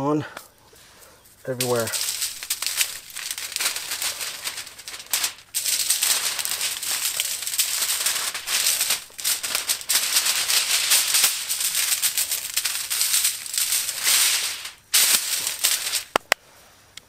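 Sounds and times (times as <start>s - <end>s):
aluminium foil crinkling: 1.4s - 16.3s.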